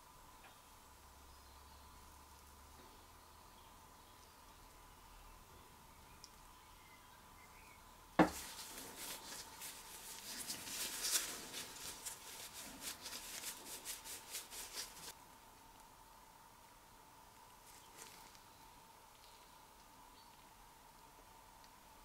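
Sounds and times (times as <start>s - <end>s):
cloth rubbing on engine block: 8.2s - 15.1s.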